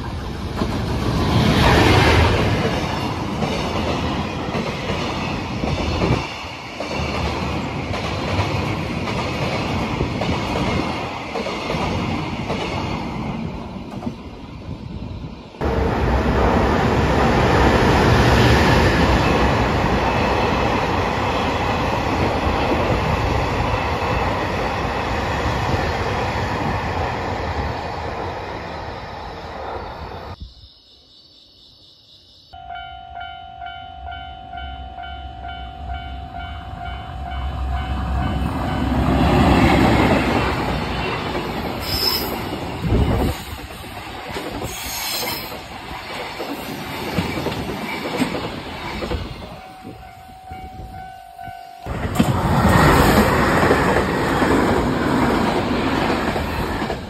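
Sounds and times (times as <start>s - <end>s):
freight train rumbling past: 0.0s - 30.4s, 32.6s - 57.0s
train running loudly past: 0.0s - 30.4s, 32.6s - 57.0s
ringing warning tone: 30.4s - 39.0s, 49.4s - 52.1s.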